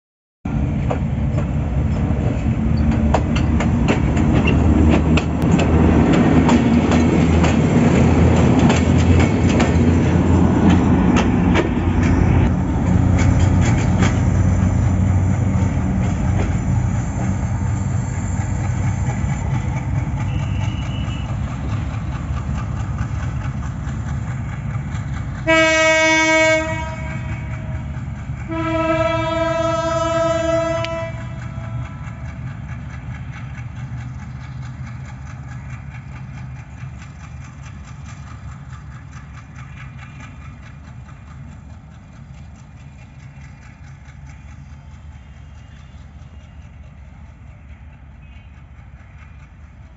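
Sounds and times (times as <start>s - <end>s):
diesel locomotive engine drone: 0.5s - 49.9s
wheels clicking over rail joints: 0.8s - 17.5s, 18.4s - 25.7s, 29.4s - 49.9s
locomotive horn: 20.2s - 21.5s, 25.4s - 32.3s.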